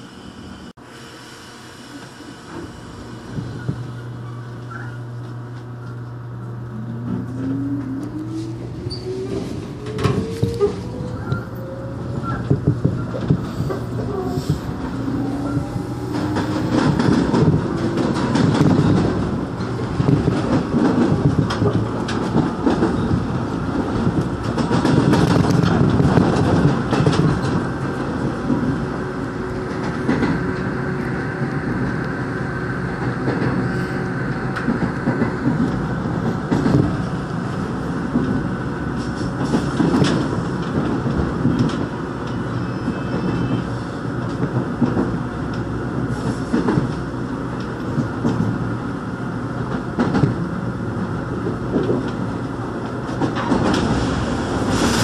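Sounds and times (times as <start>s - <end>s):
train wheels rumbling on rails: 0.0s - 55.0s
clatter over rail joints: 16.1s - 28.8s, 34.5s - 42.4s, 49.6s - 55.0s.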